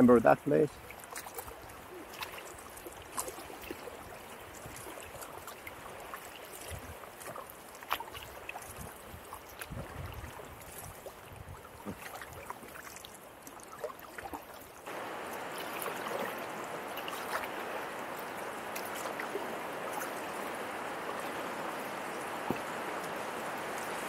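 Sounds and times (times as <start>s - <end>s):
river current rushing: 14.6s - 24.0s.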